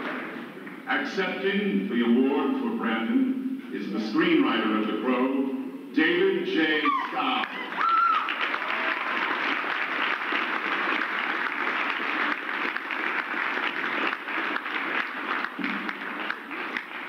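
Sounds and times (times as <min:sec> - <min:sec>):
audience applauding: 0:06.9 - 0:17.0.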